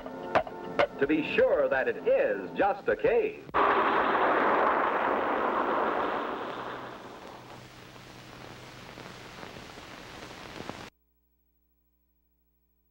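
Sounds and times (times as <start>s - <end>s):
film soundtrack hiss: 0.0s - 10.9s
faint hum: 3.4s - 12.9s.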